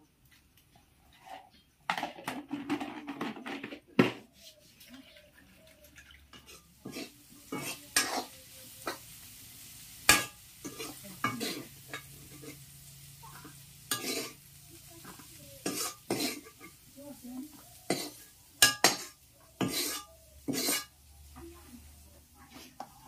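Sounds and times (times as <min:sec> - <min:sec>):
low sizzle: 0:04.6 - 0:23.0
metal ladle scraping a wok: 0:06.2 - 0:16.9, 0:17.8 - 0:21.1.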